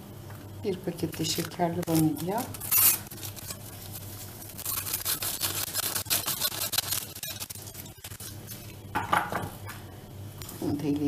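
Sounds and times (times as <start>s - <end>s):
paper sachet crinkling: 1.1s - 8.8s.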